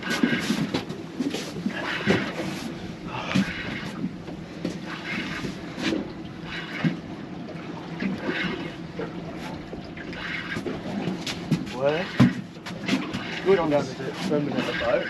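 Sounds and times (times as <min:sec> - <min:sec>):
boat engine hum: 0:00.0 - 0:15.0
water splashing against hull: 0:00.0 - 0:15.0
wind: 0:00.0 - 0:15.0.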